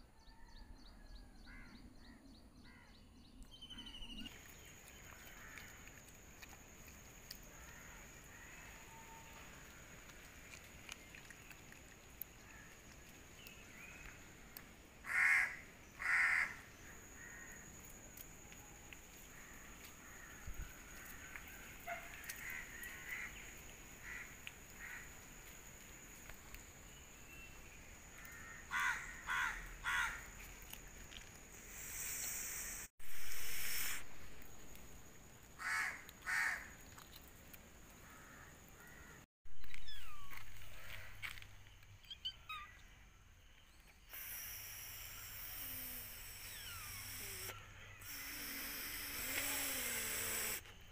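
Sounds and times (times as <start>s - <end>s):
crows cawing: 15.1s - 16.6s, 24.0s - 25.1s, 28.2s - 30.3s, 35.6s - 36.7s, 38.0s - 39.2s.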